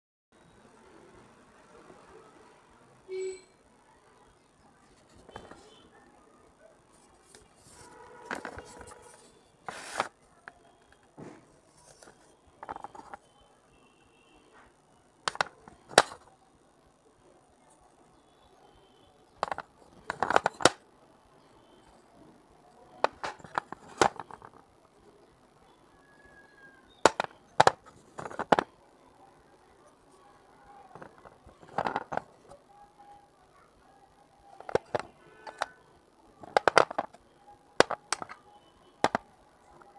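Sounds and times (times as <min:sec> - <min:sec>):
clay cups crunching: 0:11.8 - 0:13.3, 0:19.4 - 0:20.8, 0:26.9 - 0:28.7, 0:34.5 - 0:35.8, 0:36.4 - 0:37.2, 0:37.8 - 0:38.4.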